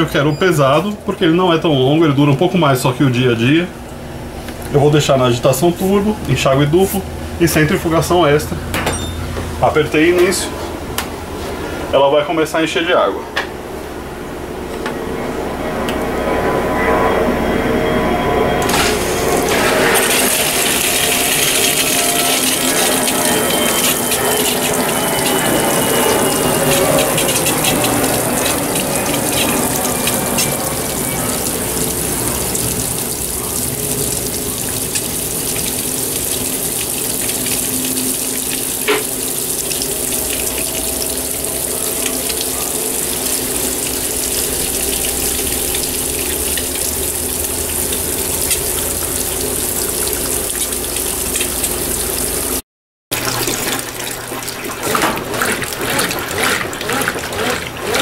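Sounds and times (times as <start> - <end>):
water pouring into washing machine: 18.6 - 58.0.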